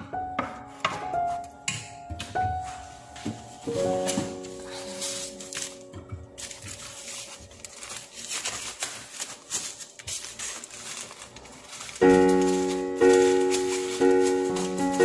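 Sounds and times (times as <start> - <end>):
background music: 0.0 - 6.7, 12.0 - 15.0
plastic crinkling and rustling: 2.2 - 15.0.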